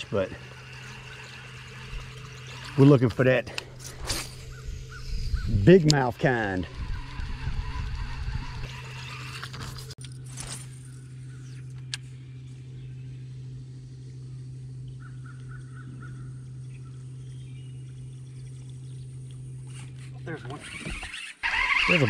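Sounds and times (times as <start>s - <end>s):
steady low hum: 0.0s - 21.5s
faint bird calls: 14.2s - 21.9s.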